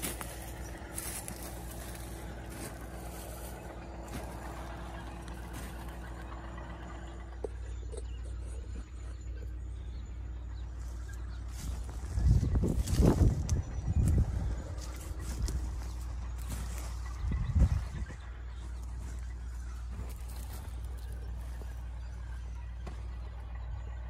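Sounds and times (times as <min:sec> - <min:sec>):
low mechanical drone: 0:00.0 - 0:24.0.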